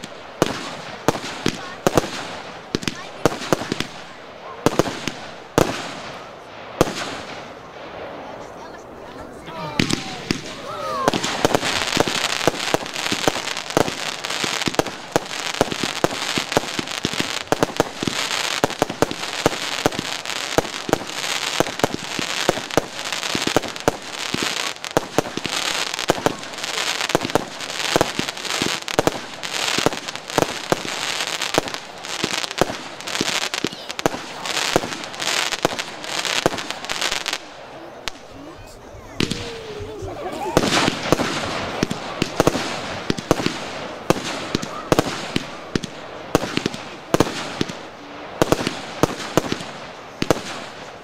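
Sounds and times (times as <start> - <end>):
fireworks pops and bangs: 0.0 - 8.3, 9.7 - 51.0
fireworks hiss: 9.7 - 38.5, 39.1 - 51.0.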